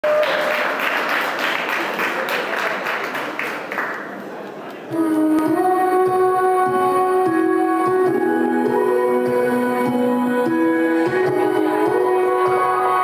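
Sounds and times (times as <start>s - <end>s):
audience applauding and cheering: 0.0s - 4.2s
dance music with held notes: 5.0s - 13.0s.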